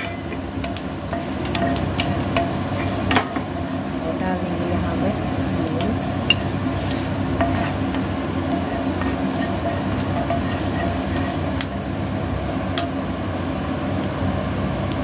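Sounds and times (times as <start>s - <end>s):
spices sizzling in oil: 0.0s - 15.0s
spatula clicks and scrapes: 0.1s - 3.4s, 5.8s - 11.8s.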